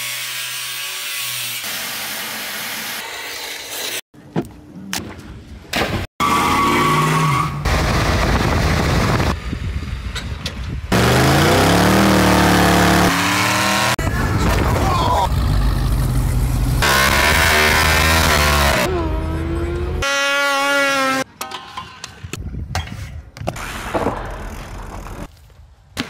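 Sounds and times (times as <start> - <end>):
angle grinder cutting steel: 0.0 - 4.0
car engine revving: 10.9 - 14.0, 15.3 - 20.0.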